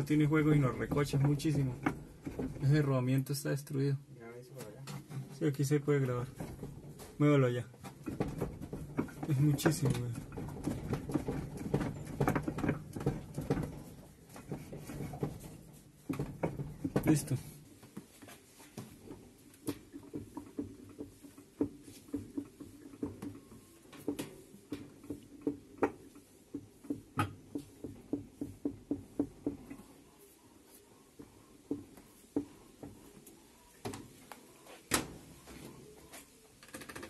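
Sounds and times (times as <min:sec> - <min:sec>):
washer basket knocking and clunking: 0:00.0 - 0:02.8, 0:06.2 - 0:17.6, 0:18.8 - 0:29.9.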